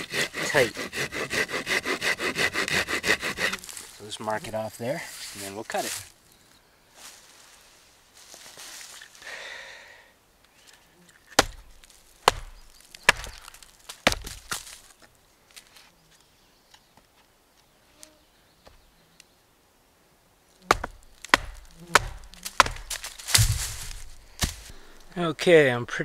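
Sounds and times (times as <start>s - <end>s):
knife chopping wood: 11.3s - 14.8s, 20.6s - 24.8s.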